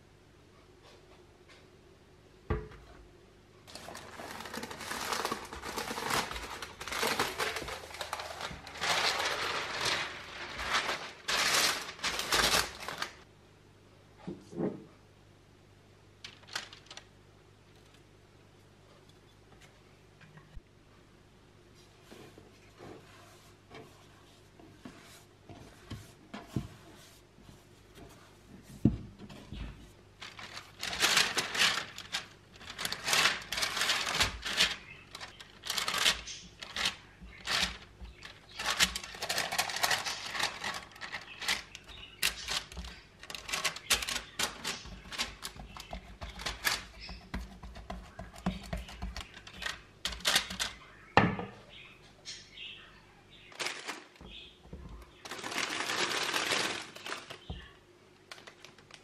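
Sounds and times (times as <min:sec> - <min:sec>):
dough crackling on baking paper: 0:03.6 - 0:13.3, 0:16.2 - 0:17.2, 0:22.0 - 0:51.0, 0:53.5 - 0:59.0.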